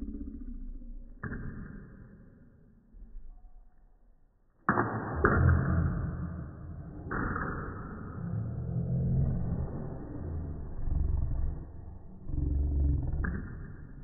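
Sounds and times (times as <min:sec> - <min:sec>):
table tennis ball hits: 0:01.2 - 0:02.4, 0:04.6 - 0:08.2, 0:13.2 - 0:14.0.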